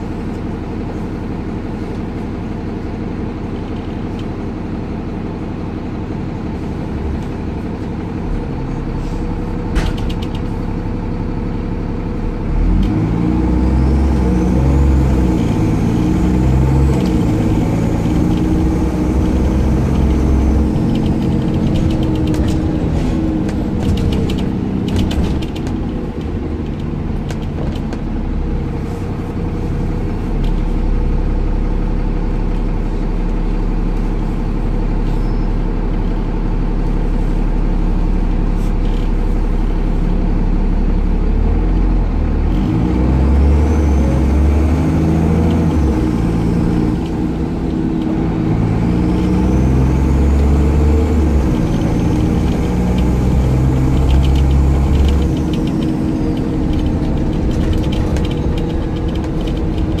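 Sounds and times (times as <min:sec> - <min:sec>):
bus diesel engine: 0:00.0 - 1:00.0
clicking rattles: 0:18.1 - 0:28.0, 0:53.8 - 1:00.0.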